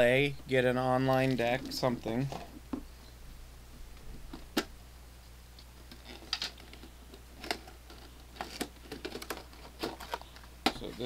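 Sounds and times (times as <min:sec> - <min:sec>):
cardboard packaging clicks and rustles: 0:05.9 - 0:11.0.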